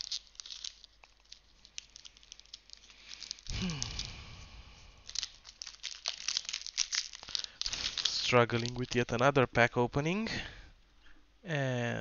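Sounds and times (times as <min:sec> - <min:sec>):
foil wrapper crinkling and tearing: 0:00.0 - 0:04.2, 0:04.8 - 0:09.4.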